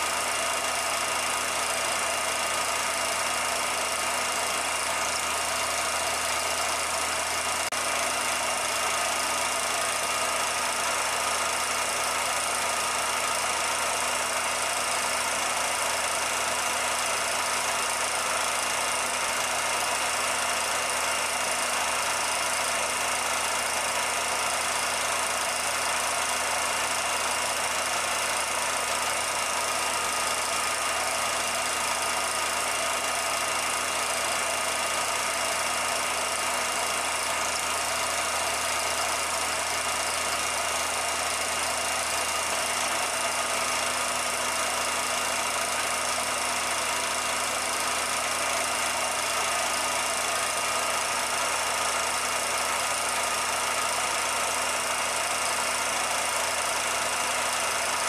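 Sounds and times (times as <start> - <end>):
film projector whirring: 0.0 - 58.0.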